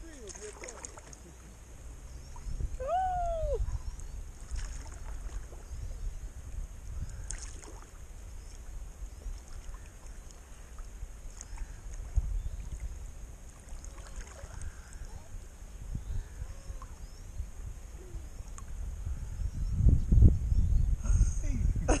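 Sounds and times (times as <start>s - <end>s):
paddle splashing and dripping: 0.0s - 5.7s, 6.5s - 15.6s.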